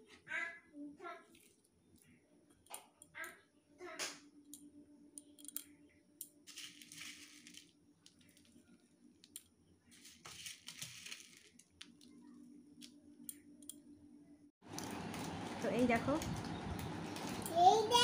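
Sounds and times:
food sprinkled into plastic bowl: 0:06.5 - 0:08.6, 0:10.0 - 0:12.0.

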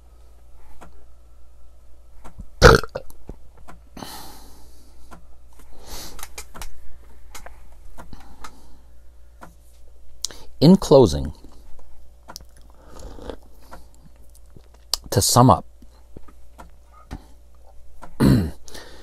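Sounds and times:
man burping: 0:02.6 - 0:03.1, 0:18.2 - 0:18.6.

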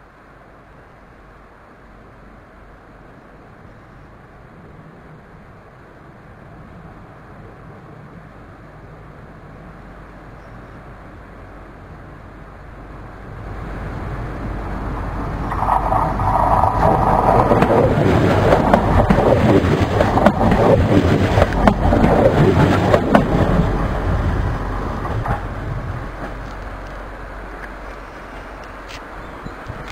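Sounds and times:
diesel railcar passing: 0:00.0 - 0:29.9
wheels clicking on rails: 0:13.3 - 0:29.9.

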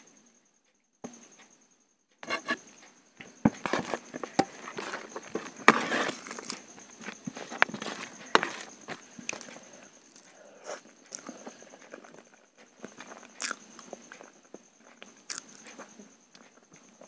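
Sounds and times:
fingers mixing rice on steel plate: 0:03.5 - 0:10.3
chewing: 0:03.7 - 0:16.6.

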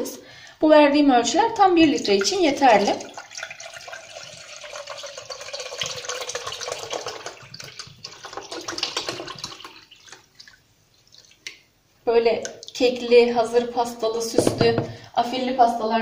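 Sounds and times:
milk pouring into saucepan: 0:02.0 - 0:11.6.

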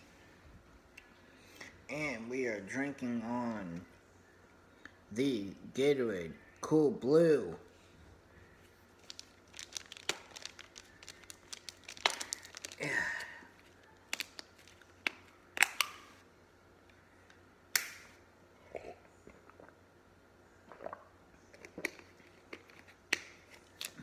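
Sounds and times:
plastic bottle clicks and crinkles: 0:09.0 - 0:12.8.

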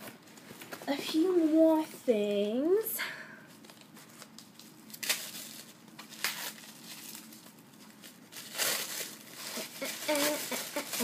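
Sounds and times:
tissue paper crinkling and tearing: 0:03.6 - 0:11.0.

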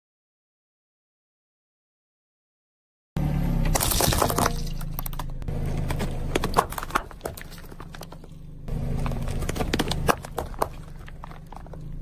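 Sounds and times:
car engine idling: 0:03.2 - 0:12.0
tyre crushing plastic items: 0:03.7 - 0:12.0.

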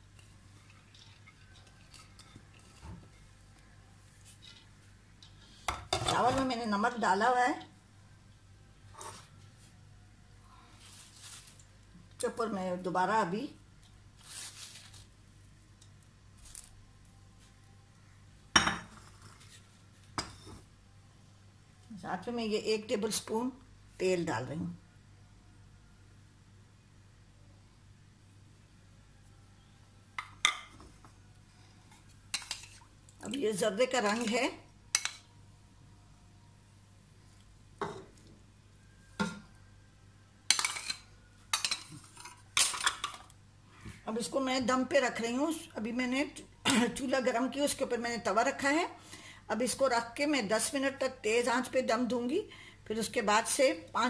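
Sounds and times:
handling rustle: 0:14.2 - 0:15.1
spoon and dishes clinking: 0:40.5 - 0:43.2.

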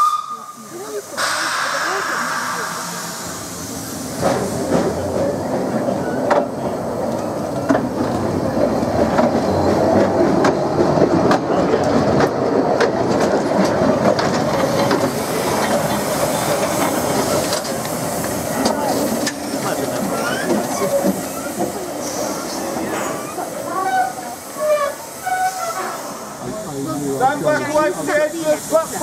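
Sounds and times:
steam train running rumble: 0:00.0 - 0:29.0
wheels clicking over rail joints: 0:06.2 - 0:25.8.

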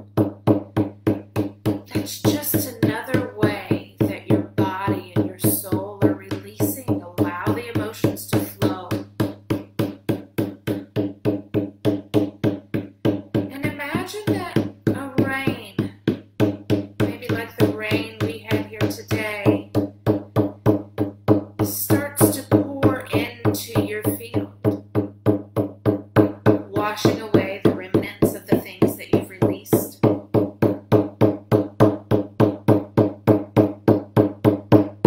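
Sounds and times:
frame drum beating: 0:00.0 - 0:35.0
woman singing: 0:01.9 - 0:09.0.

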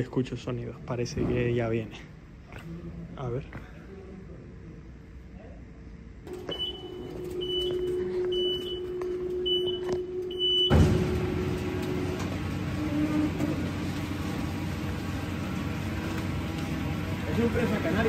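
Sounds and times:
conveyor rumble: 0:00.0 - 0:18.0
steady hum: 0:00.0 - 0:18.0
conveyor belt clattering: 0:06.3 - 0:18.0
short high warning beeps: 0:06.4 - 0:10.9.

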